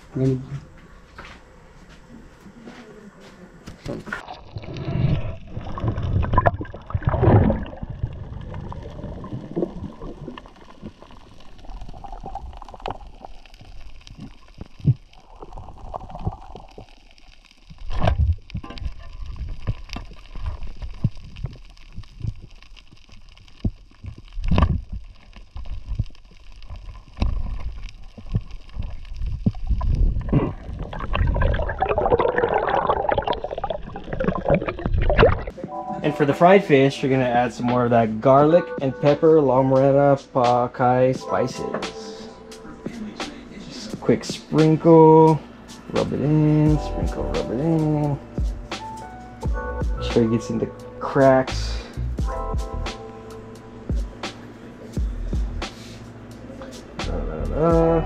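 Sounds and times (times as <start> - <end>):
underwater gurgling and sloshing: 4.0 - 35.8.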